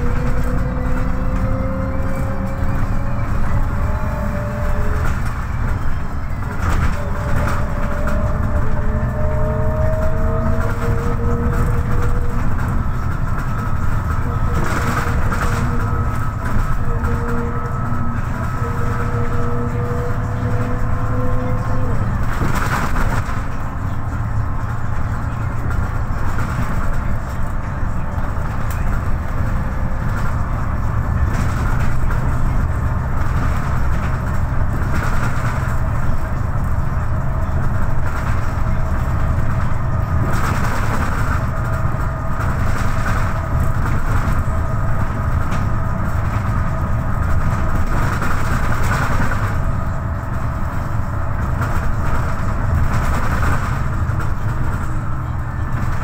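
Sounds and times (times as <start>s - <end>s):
bus engine drone: 0.0s - 56.0s
road and tyre noise: 0.0s - 56.0s.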